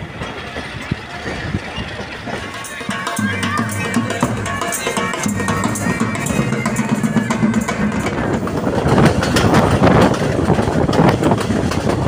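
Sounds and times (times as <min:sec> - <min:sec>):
train wheels clattering on rails: 0:00.0 - 0:12.0
bagpipes and drums playing: 0:02.5 - 0:09.4.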